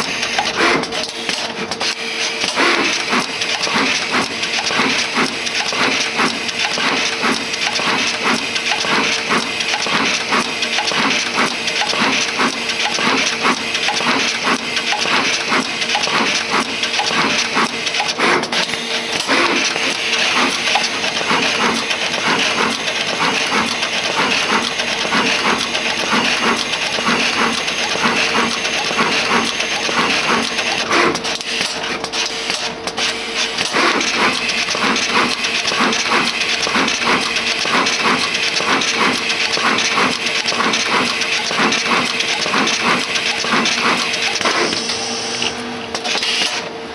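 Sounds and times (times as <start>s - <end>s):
machine hum: 0.0s - 31.5s
machine clicking rapidly: 0.0s - 44.9s.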